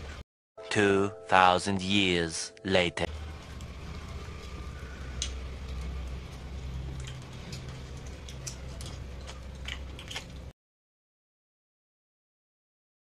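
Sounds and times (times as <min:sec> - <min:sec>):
low steady hum: 0:00.0 - 0:10.5
chewing clicks and smacks: 0:05.1 - 0:10.5.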